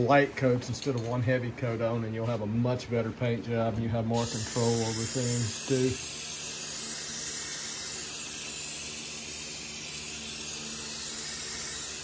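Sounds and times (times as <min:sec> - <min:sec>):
spray-paint can hissing: 0:04.2 - 0:12.0.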